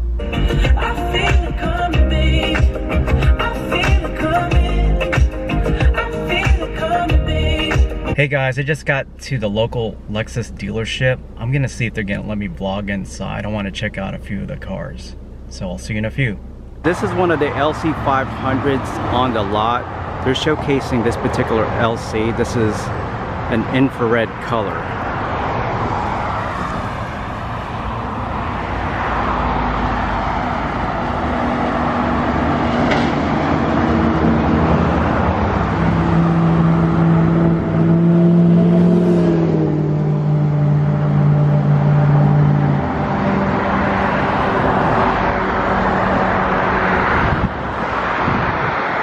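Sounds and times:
road traffic passing: 0.0s - 49.0s
vehicle engine hum passing: 15.0s - 49.0s.

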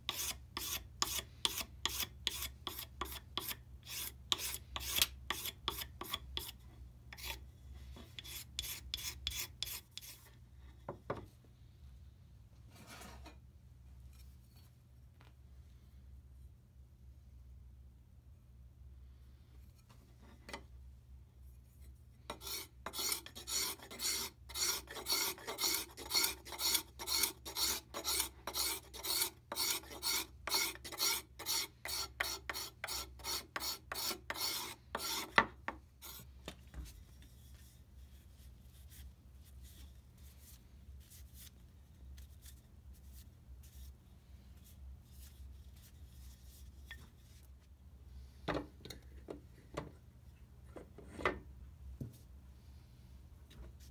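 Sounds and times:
faint handling sounds: 10.0s - 16.5s, 36.0s - 53.9s
scraper scraping wood: 22.3s - 35.4s.

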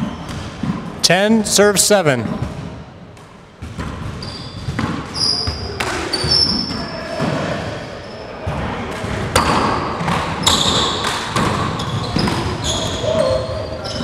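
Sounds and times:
sneakers squeaking on hardwood: 3.6s - 6.9s, 10.4s - 14.0s.

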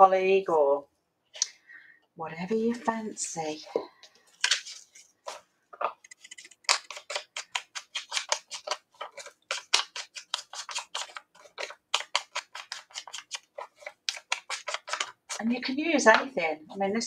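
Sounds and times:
tool rubbing paper edges: 6.1s - 15.4s.

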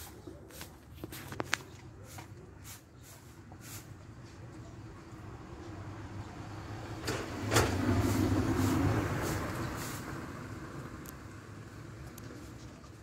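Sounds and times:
vehicle passing by: 4.9s - 12.8s.

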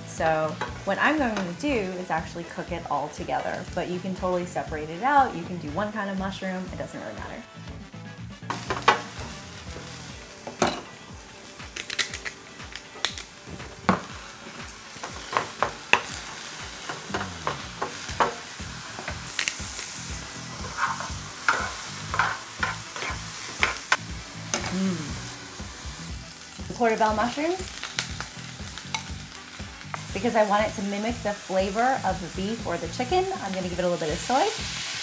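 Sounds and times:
mushrooms sizzling in oil: 0.0s - 7.4s, 8.5s - 35.0s
wooden spoon scraping pan: 20.5s - 23.2s.

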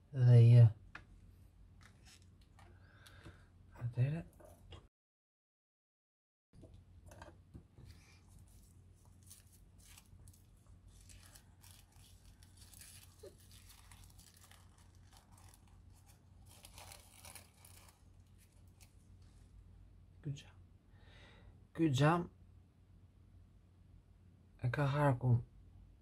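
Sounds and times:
paper and plastic crinkling: 7.8s - 19.2s.

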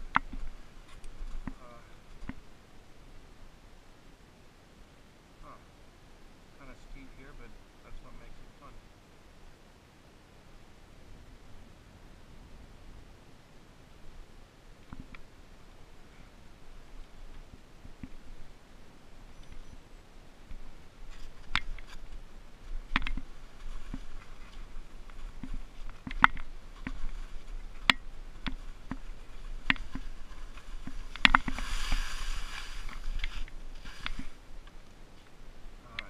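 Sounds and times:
skis scraping over snow: 21.0s - 34.4s
sharp clicks and knocks: 22.9s - 23.3s, 25.4s - 27.1s
rushing hiss: 31.4s - 34.4s.

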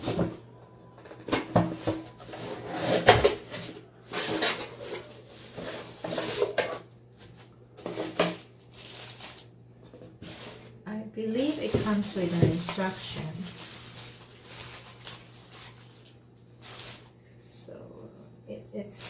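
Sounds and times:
tissue paper and plastic rustling: 7.3s - 9.5s, 10.2s - 10.7s, 11.3s - 17.2s.

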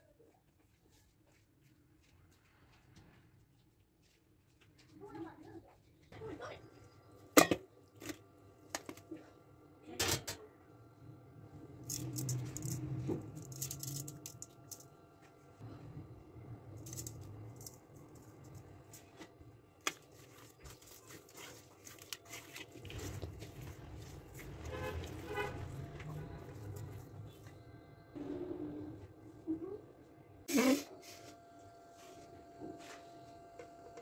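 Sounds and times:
raw meat squishing by hand: 19.8s - 24.2s.

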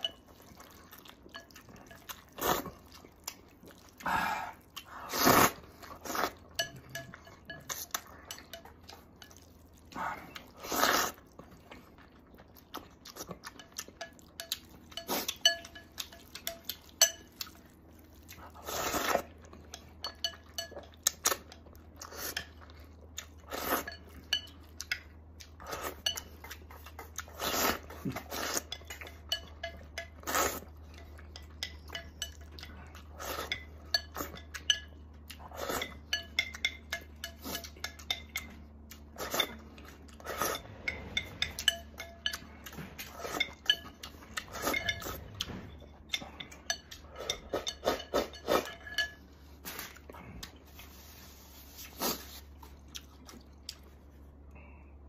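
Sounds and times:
person chewing: 0.0s - 54.6s
person slurping noodles: 4.0s - 6.4s, 10.0s - 11.2s.

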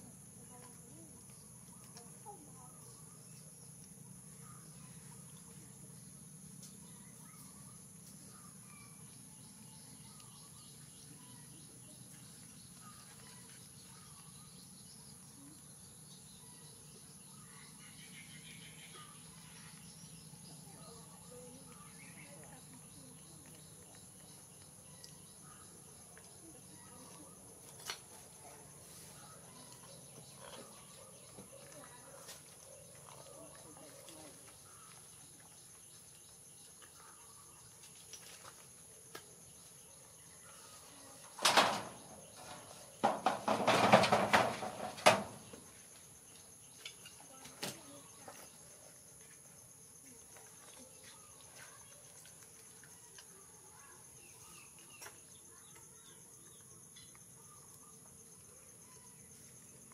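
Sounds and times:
faint chirps: 0.0s - 59.9s
rubble scraping and clattering: 41.4s - 45.5s.

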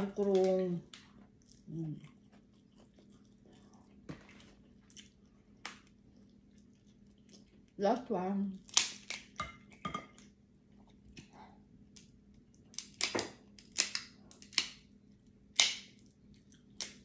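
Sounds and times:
crab shells cracking: 8.6s - 9.8s, 11.9s - 17.0s.

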